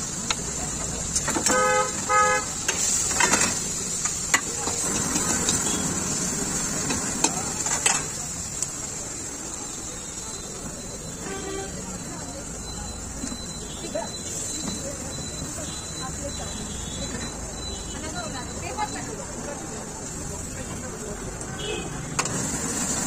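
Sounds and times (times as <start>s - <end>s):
vehicle horn tooting: 1.4s - 2.6s, 11.2s - 11.8s.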